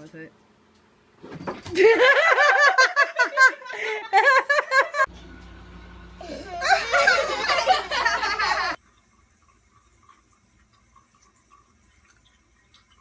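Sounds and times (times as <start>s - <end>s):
person laughing hard: 6.2s - 8.8s.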